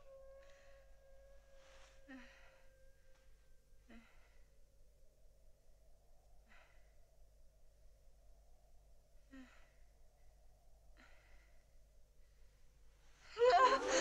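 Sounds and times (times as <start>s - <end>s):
faint held tone: 0.0s - 10.6s
woman sighing breaths: 1.6s - 2.6s, 3.9s - 4.5s, 13.2s - 14.0s.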